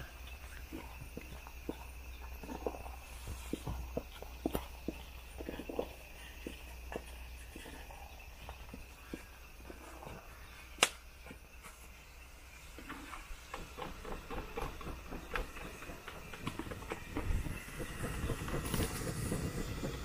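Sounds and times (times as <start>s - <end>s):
sharp crack: 10.8s - 11.0s.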